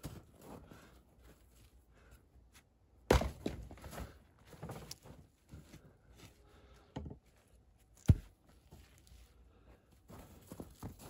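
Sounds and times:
log thunking on chopping block: 3.1s - 3.7s.

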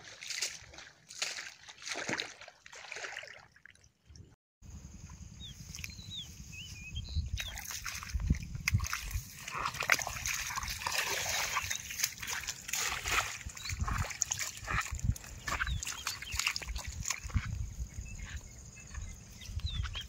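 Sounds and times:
water splashing in a furrow: 0.0s - 4.4s, 7.4s - 17.6s
wind rumble on microphone: 4.7s - 20.0s.

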